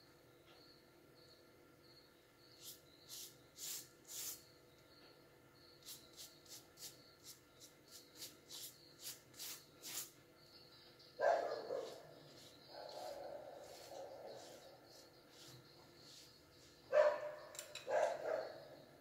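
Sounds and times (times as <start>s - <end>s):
pastry brush swishing: 11.8s - 16.6s.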